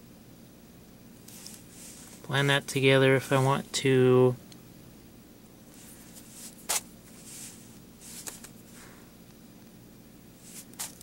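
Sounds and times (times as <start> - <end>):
soft rustles: 1.2 - 2.3, 5.7 - 9.1, 10.4 - 11.0.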